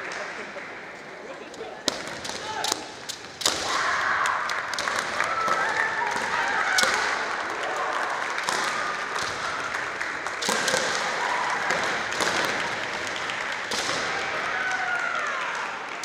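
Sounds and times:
spectators clapping: 0.0s - 0.8s, 2.0s - 16.0s
bamboo sword strikes cracking: 1.9s - 5.0s.

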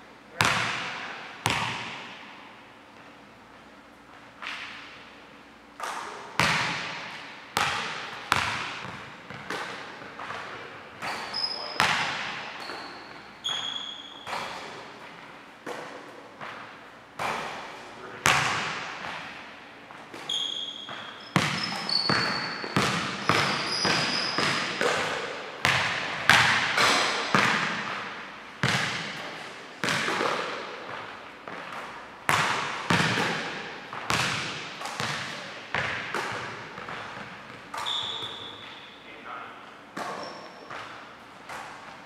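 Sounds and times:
basketballs bouncing on hardwood floor: 0.4s - 2.2s, 5.8s - 14.6s, 18.2s - 19.3s, 20.1s - 38.7s
sneaker squeaks: 10.2s - 14.8s, 20.0s - 25.3s, 36.2s - 39.2s, 40.0s - 41.9s.

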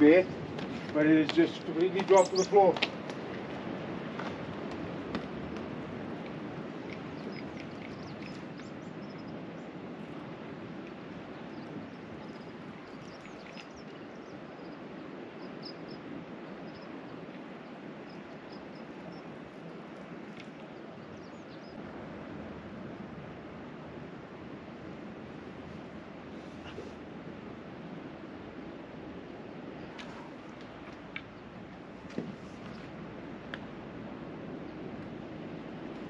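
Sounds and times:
sea waves on rocky shore: 0.0s - 26.4s
wind: 0.0s - 36.0s.

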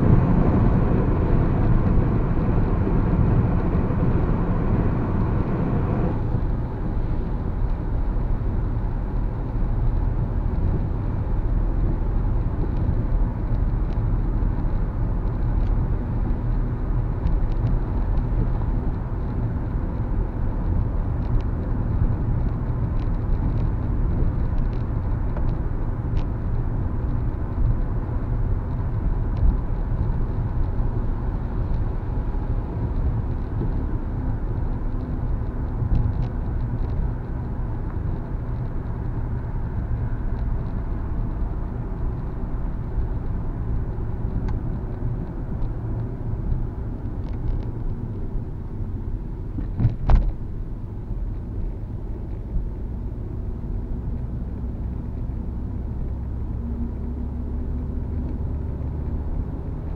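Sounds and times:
car rumble on wet road: 0.0s - 59.9s.

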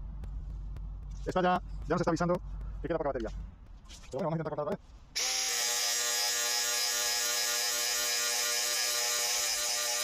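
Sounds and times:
angle grinder cutting steel: 5.2s - 10.0s.

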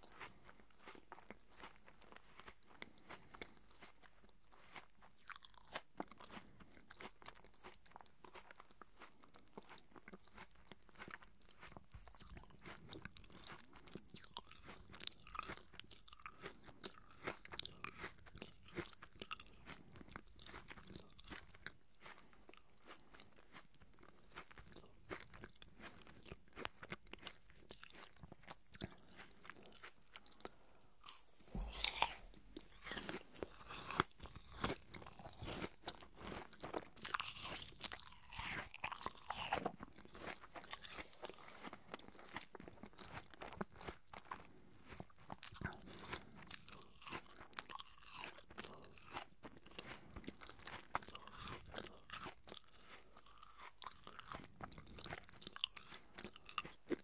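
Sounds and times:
chewing crisp apple: 0.0s - 57.0s
wet mouth clicks: 28.7s - 35.8s.

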